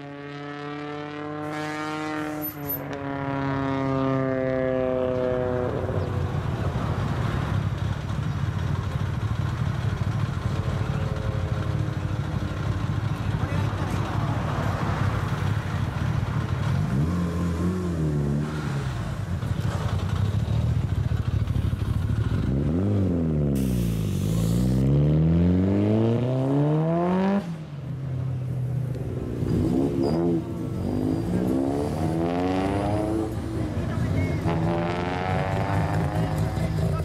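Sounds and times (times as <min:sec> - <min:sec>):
car engine accelerating hard: 0:00.2 - 0:07.7, 0:22.3 - 0:27.6, 0:28.9 - 0:37.0
car engine revving: 0:21.8 - 0:27.8, 0:28.9 - 0:37.0.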